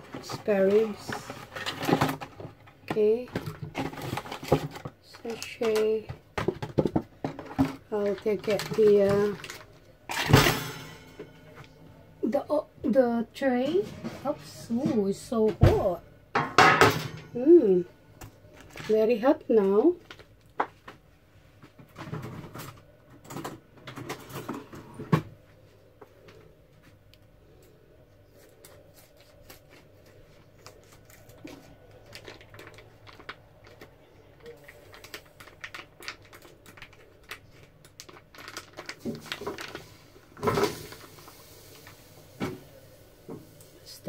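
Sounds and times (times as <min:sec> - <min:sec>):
plastic packaging crinkling: 0:00.0 - 0:10.0, 0:20.0 - 0:20.5, 0:28.4 - 0:42.1.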